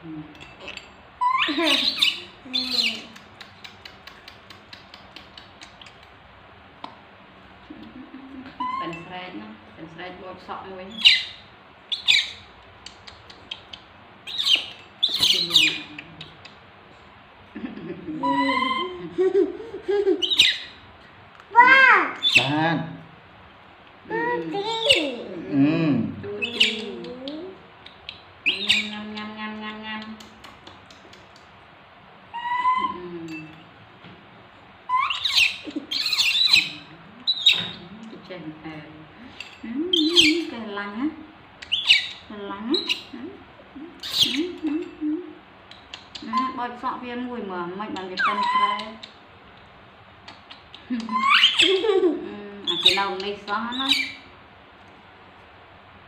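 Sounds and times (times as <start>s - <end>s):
baby monkey screeching squeal: 1.2s - 3.0s, 8.6s - 9.0s, 14.3s - 15.8s, 18.2s - 19.0s, 20.2s - 20.8s, 32.3s - 33.0s, 34.9s - 37.8s, 41.7s - 42.2s, 48.1s - 49.0s, 51.1s - 51.9s, 53.7s - 54.3s.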